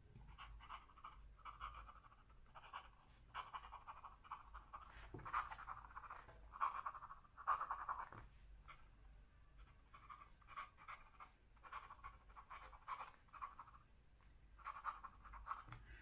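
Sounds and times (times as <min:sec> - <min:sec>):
pen nib scratching on paper: 0:00.2 - 0:08.9, 0:09.6 - 0:15.8.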